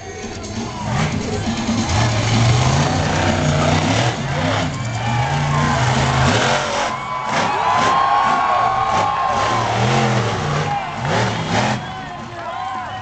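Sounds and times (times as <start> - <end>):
monster truck engine revving: 0.1 - 12.5.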